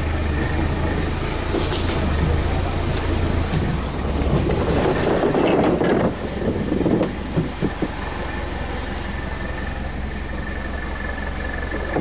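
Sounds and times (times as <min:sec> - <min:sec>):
off-road vehicle engine running: 0:00.0 - 0:12.0
rough rushing and scraping: 0:00.8 - 0:09.9.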